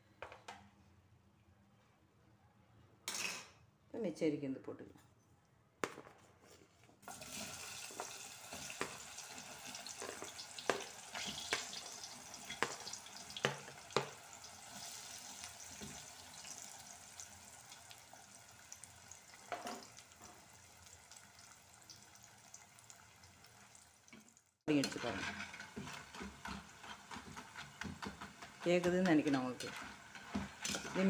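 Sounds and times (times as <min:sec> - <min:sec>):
oil sizzling: 0:07.0 - 0:31.0.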